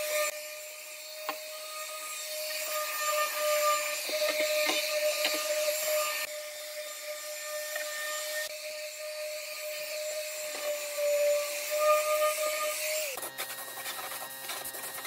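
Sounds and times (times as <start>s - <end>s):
palm sander scrubbing wood: 7.4s - 15.0s.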